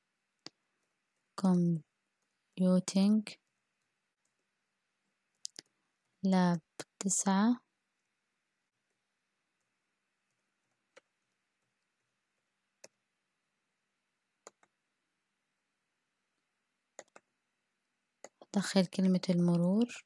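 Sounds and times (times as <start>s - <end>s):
keyboard and mouse clicks: 5.3s - 6.2s, 9.6s - 13.0s, 14.4s - 14.8s, 17.0s - 17.3s, 18.2s - 18.5s.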